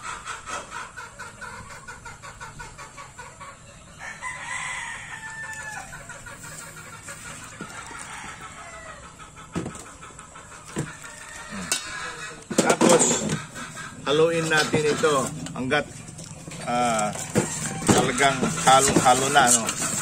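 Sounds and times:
chickens clucking: 0:00.0 - 0:20.0
rooster crowing: 0:04.0 - 0:06.0, 0:07.7 - 0:09.1, 0:10.9 - 0:12.2, 0:17.1 - 0:19.5.

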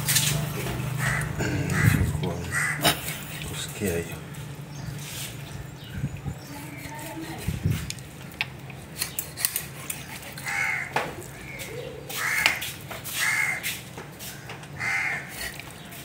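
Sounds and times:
bird harsh calls: 0:00.9 - 0:03.2, 0:09.0 - 0:16.0.

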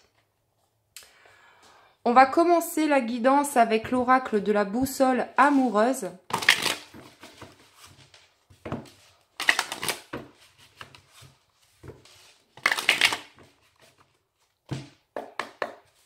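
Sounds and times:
cards being shuffled: 0:06.3 - 0:14.5.

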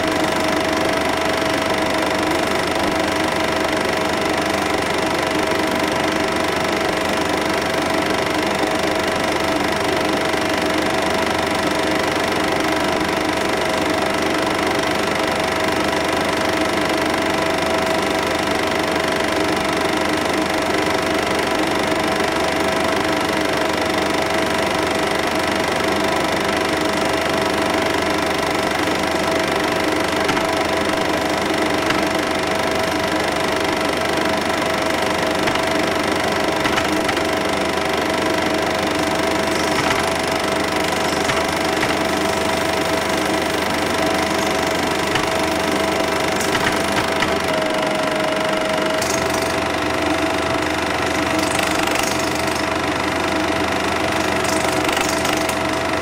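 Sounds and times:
film projector whirring: 0:00.0 - 0:56.0.

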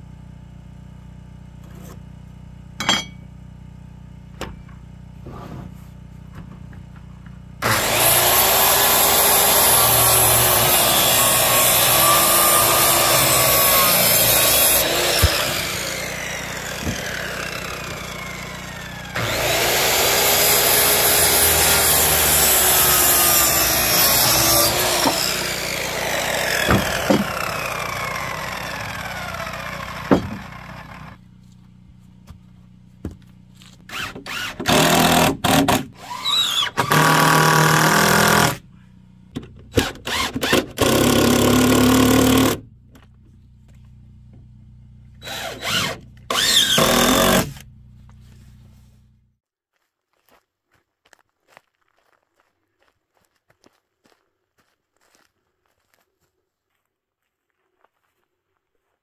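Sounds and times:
circular saw cutting wood: 0:07.6 - 0:31.2, 0:33.8 - 0:38.6, 0:39.7 - 0:42.7, 0:45.2 - 0:47.8
cordless drill driving screws: 0:07.6 - 0:31.2, 0:33.9 - 0:38.6, 0:39.7 - 0:42.6, 0:45.2 - 0:47.6.

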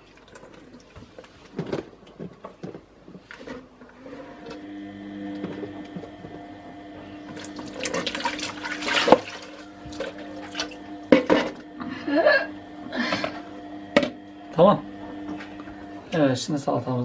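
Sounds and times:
tap water running into pot: 0:00.0 - 0:01.3, 0:07.2 - 0:11.8
steady low hum: 0:04.4 - 0:16.6.

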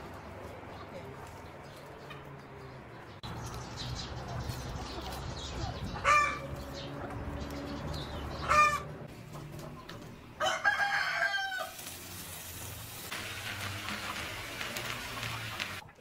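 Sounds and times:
chickens calling: 0:00.2 - 0:15.8
rooster crowing: 0:10.4 - 0:11.8.

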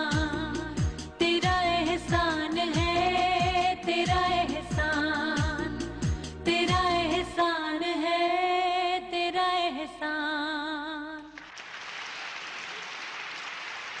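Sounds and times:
audience applause: 0:11.4 - 0:14.0.

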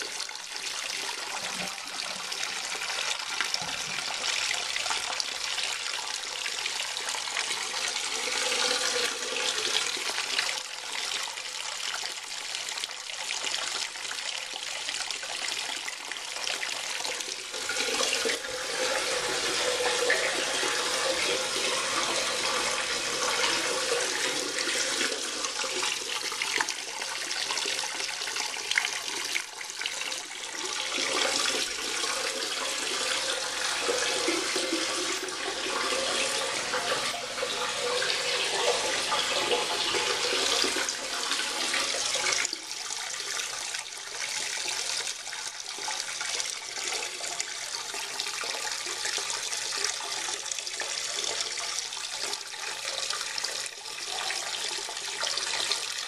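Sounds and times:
toilet tank refilling: 0:00.0 - 0:56.0.

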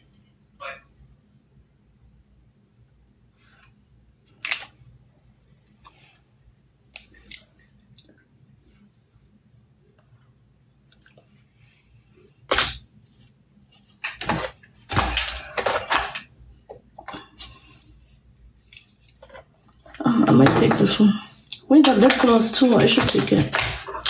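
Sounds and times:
small plastic items clicking and clattering: 0:19.2 - 0:24.0.

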